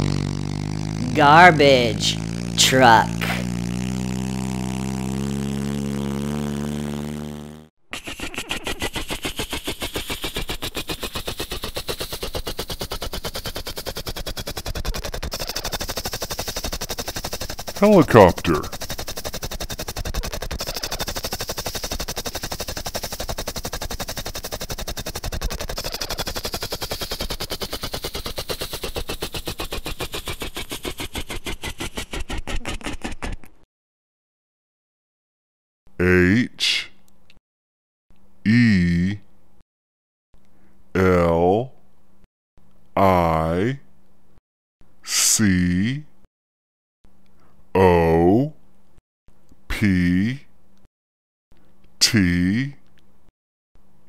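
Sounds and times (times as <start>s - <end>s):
helicopter rotor chopping: 0.0s - 33.4s.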